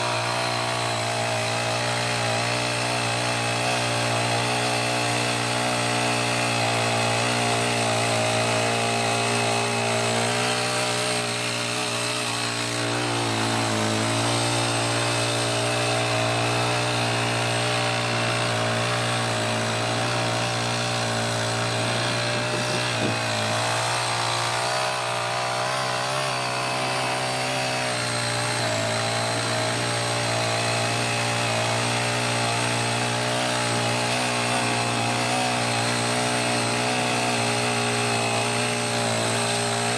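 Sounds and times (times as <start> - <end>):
garden tiller engine running: 0.0 - 39.9.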